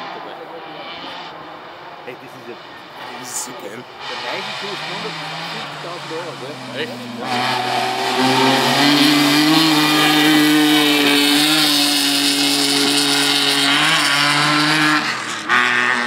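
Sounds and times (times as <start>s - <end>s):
rally car engine at high revs: 0.0s - 16.0s.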